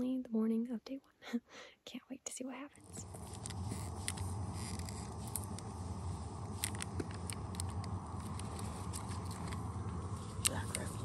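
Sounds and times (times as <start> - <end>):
steady low rumble: 2.5 - 11.0.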